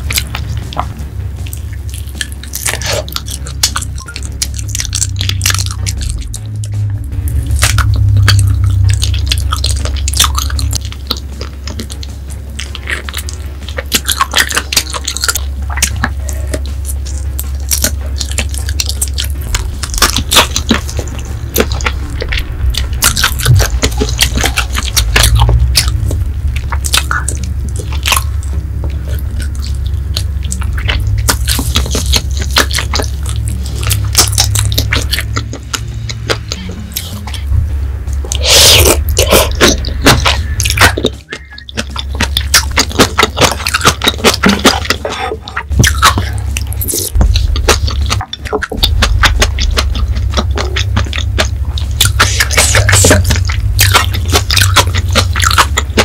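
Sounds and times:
person chewing wetly: 0:00.0 - 0:56.0
sharp mouth clicks: 0:23.0 - 0:56.0.

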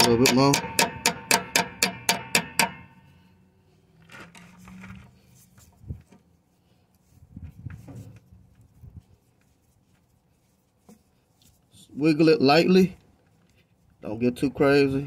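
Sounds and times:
faint handling sounds: 0:03.6 - 0:14.3.

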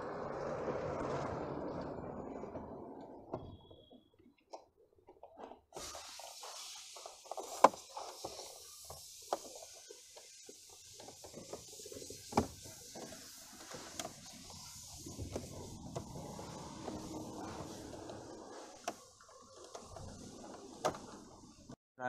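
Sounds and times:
steady hiss: 0:05.8 - 0:21.8.

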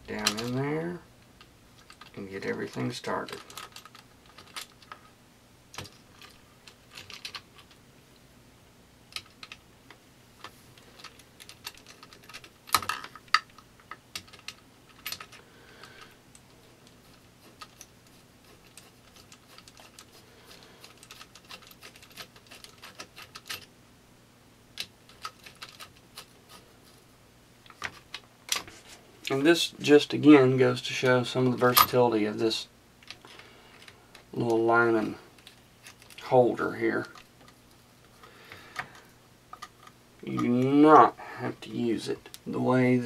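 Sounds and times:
metal and plastic parts clicking: 0:01.8 - 0:05.0, 0:05.7 - 0:07.8, 0:10.4 - 0:17.9, 0:20.8 - 0:23.7, 0:24.8 - 0:26.3.

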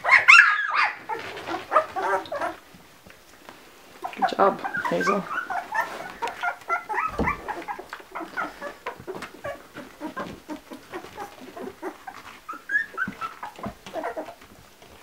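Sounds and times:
puppies squeaking and whimpering: 0:00.0 - 0:02.7, 0:04.0 - 0:15.0
low thump: 0:07.1 - 0:07.7.

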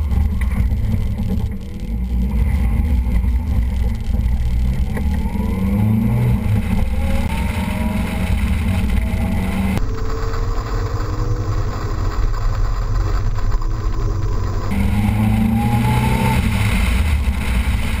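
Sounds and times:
car engine accelerating: 0:00.0 - 0:18.0
wind rumble on microphone: 0:00.0 - 0:18.0.

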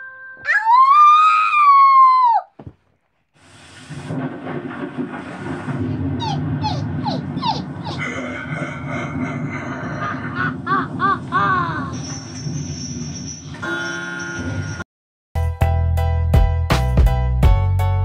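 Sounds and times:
howling cry: 0:00.4 - 0:02.5, 0:06.2 - 0:12.0
low rumbling din: 0:03.8 - 0:12.0
falling squeaks and cries: 0:06.2 - 0:08.0.

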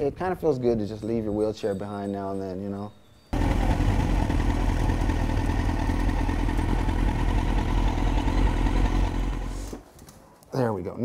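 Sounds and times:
motorcycle engine running: 0:03.4 - 0:09.7.

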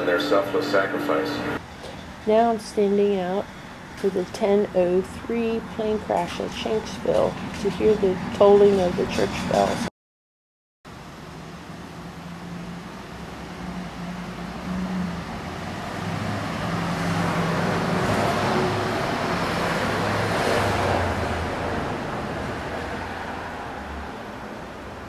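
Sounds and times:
vehicle passing by: 0:11.3 - 0:25.0.

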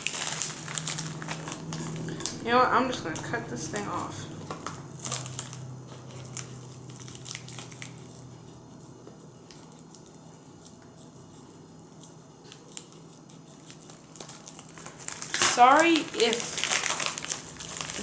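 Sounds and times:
padded envelope crinkling: 0:00.0 - 0:02.1, 0:04.4 - 0:08.2, 0:12.5 - 0:18.0.

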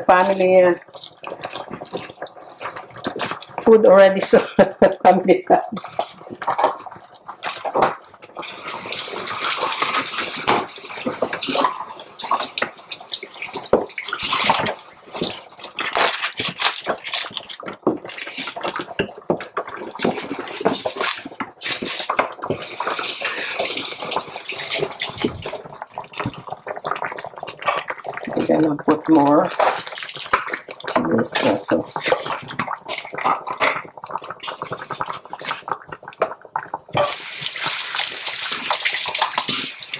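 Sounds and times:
tap water running into sink: 0:36.9 - 0:39.9.

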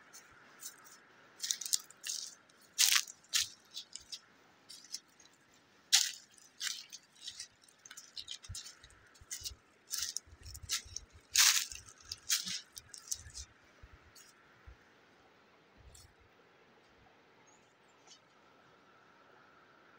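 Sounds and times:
footsteps crunching through dry leaves: 0:00.1 - 0:05.3, 0:05.9 - 0:13.5.

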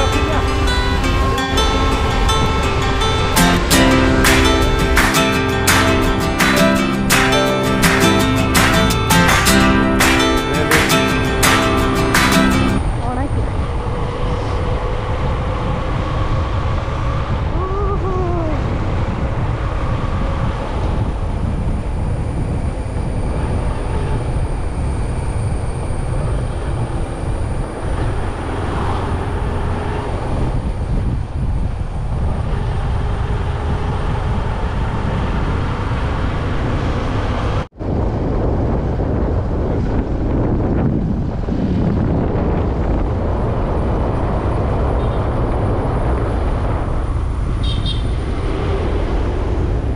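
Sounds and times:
rising-and-falling tone: 0:00.0 - 0:12.9
vehicle road and wind rumble: 0:00.0 - 0:49.9.

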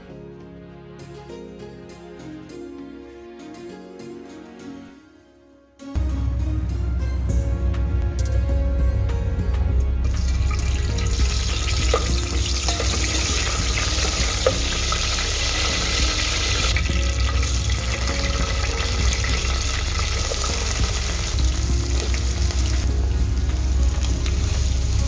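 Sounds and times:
leaves sizzling in hot oil: 0:10.1 - 0:25.0
spoon tapping a pot: 0:11.9 - 0:13.4.

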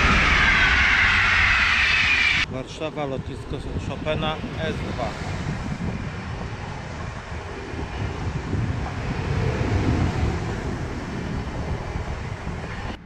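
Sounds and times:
electric train passing: 0:00.0 - 0:13.0
wind buffeting microphone: 0:00.0 - 0:13.0.

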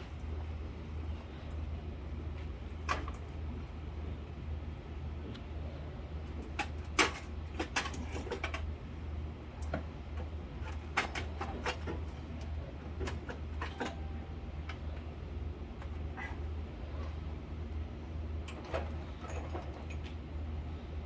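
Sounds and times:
low steady hum: 0:00.0 - 0:21.0
metal clicks and clanks: 0:06.4 - 0:08.7, 0:09.6 - 0:14.9.

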